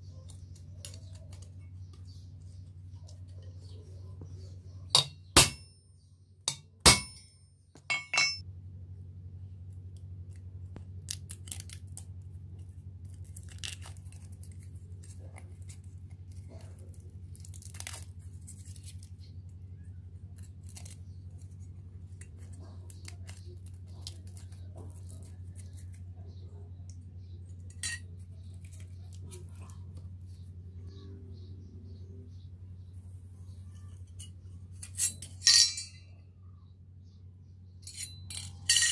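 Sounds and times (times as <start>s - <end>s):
thin metal crinkling: 0.0s - 5.8s, 6.5s - 8.4s, 10.3s - 19.5s, 20.2s - 26.5s, 27.3s - 30.4s, 33.6s - 36.2s, 37.8s - 38.9s
steady low hum: 0.0s - 38.9s
hammer striking knife blade: 5.0s - 5.8s, 6.5s - 8.4s, 34.9s - 36.0s.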